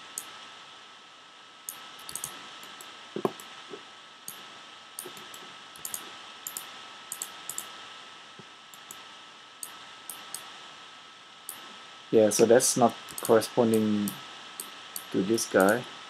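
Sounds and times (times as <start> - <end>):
faint steady hiss: 0.0 - 16.0
computer mouse clicking: 1.7 - 3.5, 5.0 - 7.7, 8.7 - 9.0, 9.6 - 10.5, 13.1 - 15.8.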